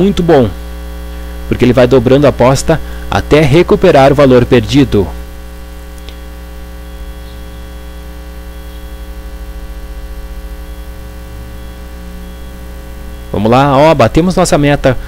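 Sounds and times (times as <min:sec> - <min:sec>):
electrical mains hum: 0:00.0 - 0:15.0
faint click: 0:06.0 - 0:06.2.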